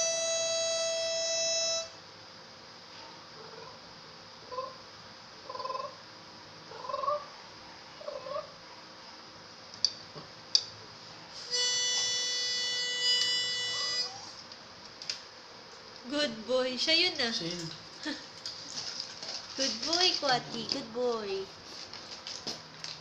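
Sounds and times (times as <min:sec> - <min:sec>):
harmonica chord: 0:00.0 - 0:02.0, 0:11.4 - 0:14.4
dog whining: 0:11.5 - 0:14.4.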